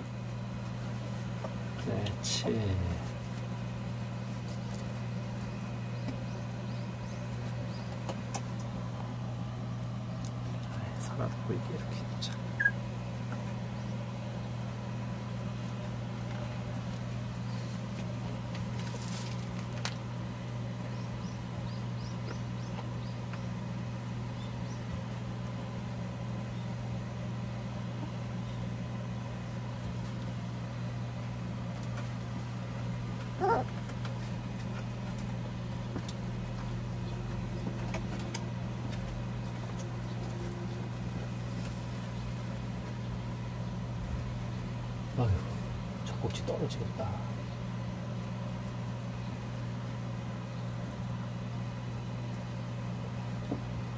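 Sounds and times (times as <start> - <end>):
electric fan humming: 0.0 - 53.9
puppy squeaking: 12.6 - 12.8, 33.4 - 33.7.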